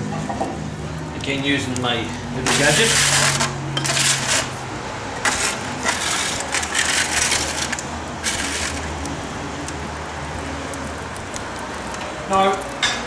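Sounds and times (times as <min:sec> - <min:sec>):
foil tray scraping on brick: 0:02.4 - 0:04.6, 0:05.2 - 0:09.0.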